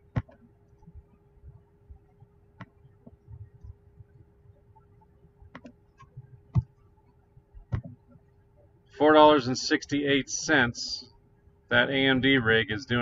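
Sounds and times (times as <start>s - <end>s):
faint steady hum: 0.0s - 13.0s
computer mouse clicks: 5.5s - 6.7s.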